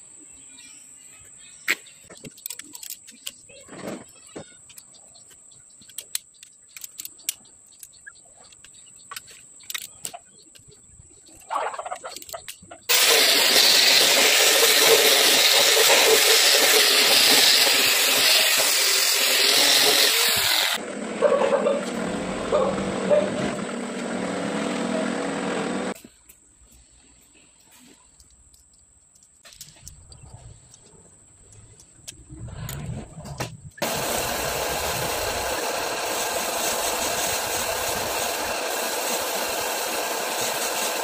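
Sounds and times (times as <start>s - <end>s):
angle grinder grinding metal: 12.9s - 26.0s, 33.8s - 41.0s
quieter steady machine noise: 12.9s - 26.0s, 33.8s - 41.0s.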